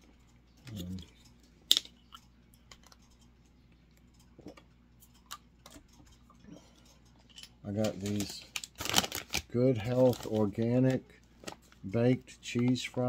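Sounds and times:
plastic bottle crackles: 7.8 - 10.8.

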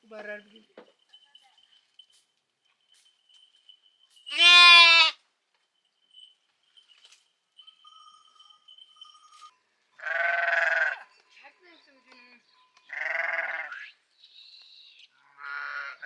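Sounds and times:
lambs bleating: 4.3 - 5.2, 10.0 - 11.0, 12.9 - 13.8, 15.2 - 16.0.

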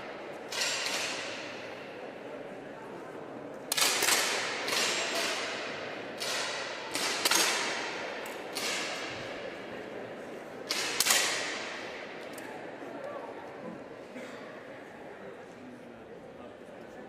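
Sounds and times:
air pistol shots echoing: 3.7 - 9.1, 10.7 - 11.9.

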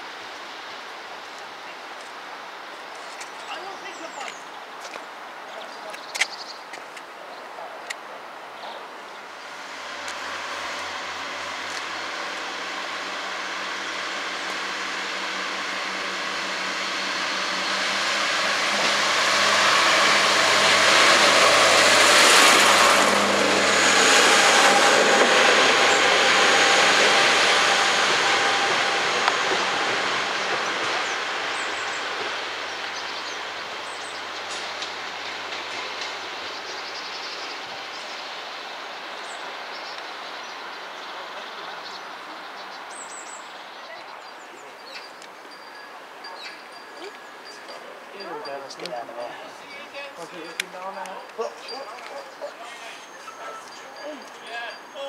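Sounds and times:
diesel train passing: 8.2 - 55.0
thin high squeal: 52.6 - 55.0.

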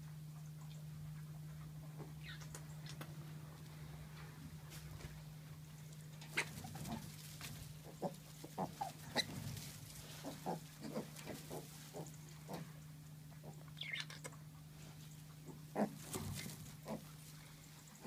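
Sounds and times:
low hum: 0.0 - 18.0
piglets squeaking and grunting: 7.8 - 12.7, 15.4 - 17.2.

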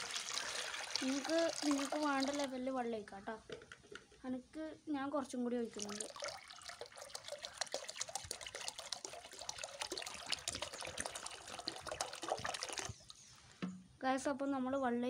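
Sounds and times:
water pouring into plastic pot: 0.0 - 2.6, 5.7 - 13.2.

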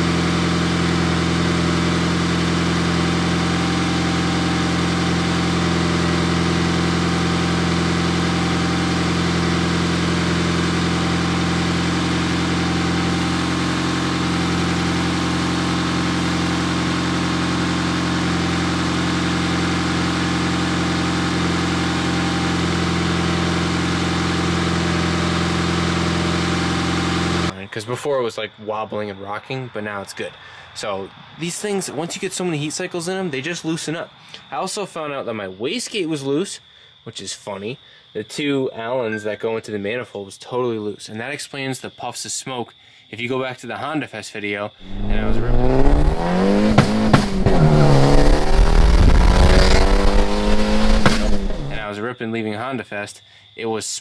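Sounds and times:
car engine idling: 0.0 - 27.6, 44.8 - 51.9.

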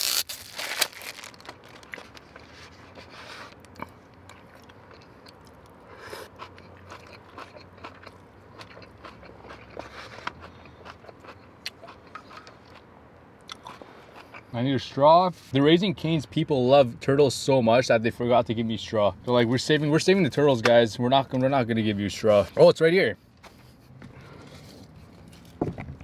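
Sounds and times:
person chewing crunchy food: 0.0 - 14.5.

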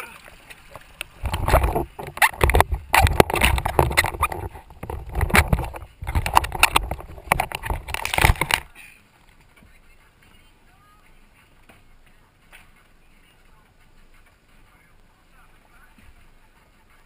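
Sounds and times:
camera knocking and thumping: 1.2 - 8.7.

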